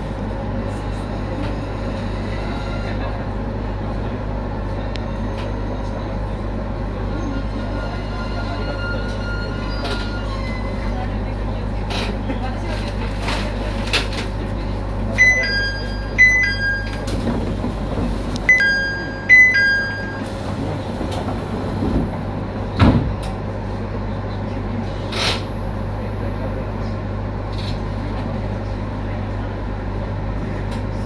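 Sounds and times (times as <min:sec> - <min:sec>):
train humming: 0:00.0 - 0:31.0
two-note door chime: 0:18.5 - 0:20.3.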